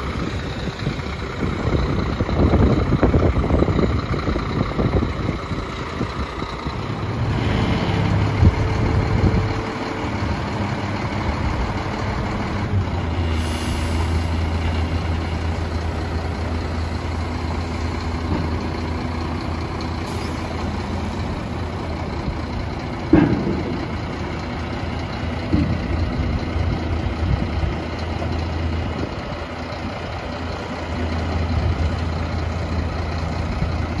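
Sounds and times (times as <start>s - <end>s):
diesel truck engine running: 0.0s - 34.0s
air hiss: 13.3s - 14.6s
metallic clunk: 22.9s - 24.5s.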